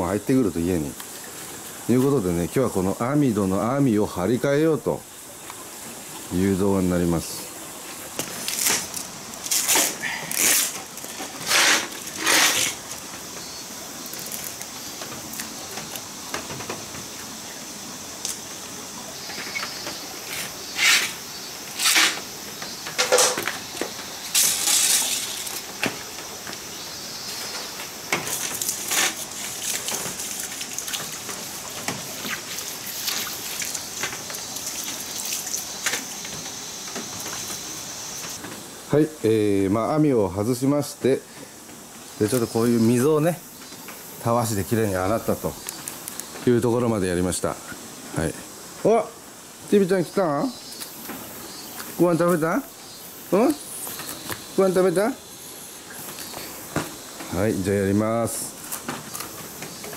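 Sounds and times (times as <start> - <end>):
garden hose hissing: 0.0 - 59.9
scrubbing brush strokes: 6.4 - 13.4, 27.3 - 38.4.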